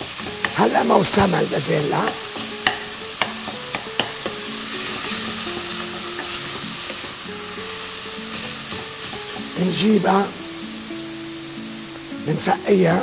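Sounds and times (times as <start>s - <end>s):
minced meat sizzling in a pot: 0.0s - 13.0s
wooden spoon knocking on pot: 2.1s - 4.4s.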